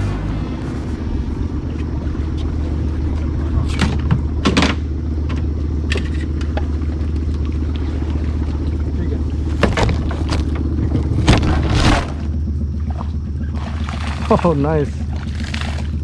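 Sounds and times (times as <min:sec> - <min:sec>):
outboard motor humming: 0:00.0 - 0:16.0
branches and leaves brushing boat: 0:06.5 - 0:16.0.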